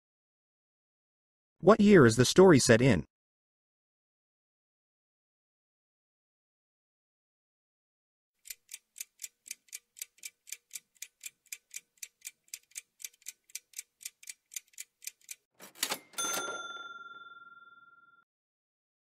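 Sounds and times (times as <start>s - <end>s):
clock ticking: 8.4s - 16.0s
bell-like ding: 15.9s - 18.2s.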